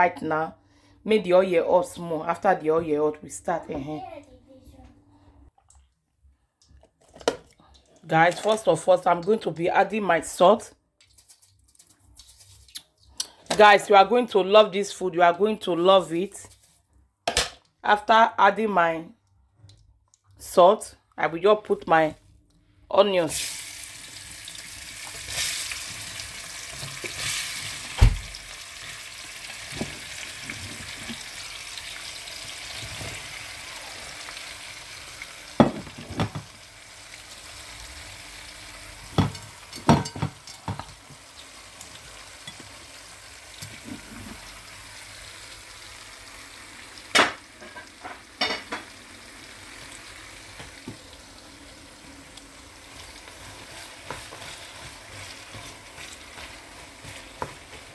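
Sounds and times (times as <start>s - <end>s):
onions sizzling in oil: 23.3s - 57.9s
stirring knocks: 53.6s - 57.9s.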